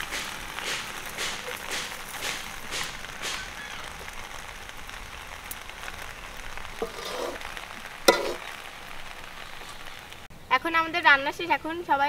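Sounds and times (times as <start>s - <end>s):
pasta sizzling in wok: 0.0s - 10.4s
metal spoon scraping wok: 6.8s - 7.4s, 8.1s - 8.5s
spoon clanking on wok: 8.1s - 8.4s.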